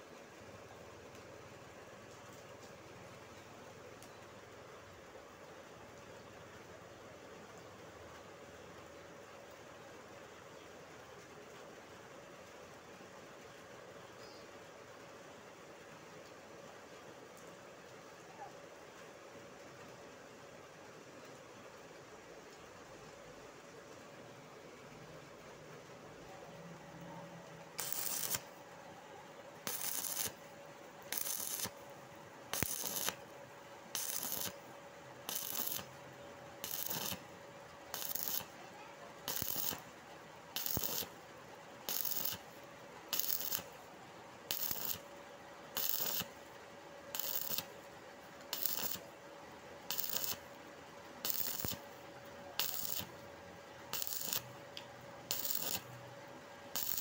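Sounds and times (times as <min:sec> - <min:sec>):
faint steady tone: 0:00.0 - 0:57.0
welding arc crackling and sizzling: 0:27.7 - 0:28.6, 0:29.6 - 0:30.4, 0:31.0 - 0:31.8, 0:32.5 - 0:33.3, 0:33.9 - 0:36.0, 0:36.6 - 0:37.3, 0:37.9 - 0:38.6, 0:39.2 - 0:39.9, 0:40.6 - 0:41.2, 0:41.8 - 0:43.8, 0:44.5 - 0:45.1, 0:45.7 - 0:46.4, 0:47.1 - 0:47.8, 0:48.4 - 0:49.1, 0:49.8 - 0:50.6, 0:51.2 - 0:52.0, 0:52.6 - 0:53.3, 0:53.9 - 0:56.0, 0:56.7 - 0:57.0.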